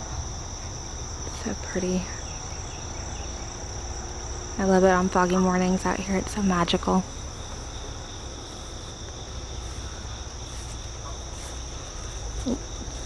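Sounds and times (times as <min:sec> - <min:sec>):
crickets trilling: 0:00.0 - 0:13.0.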